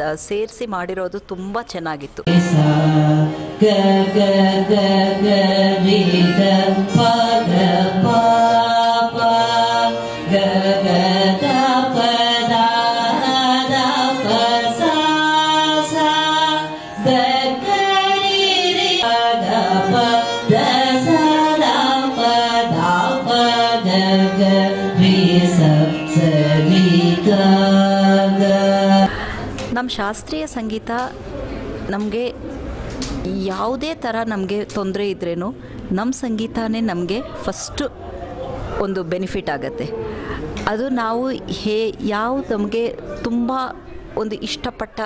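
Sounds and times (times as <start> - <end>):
woman singing classical vocals: 2.2 - 29.1
violin accompaniment: 2.3 - 29.1.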